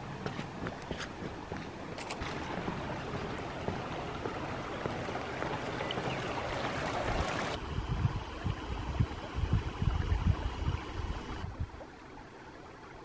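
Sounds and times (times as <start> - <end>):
creek flowing over gravel: 0.0 - 7.6.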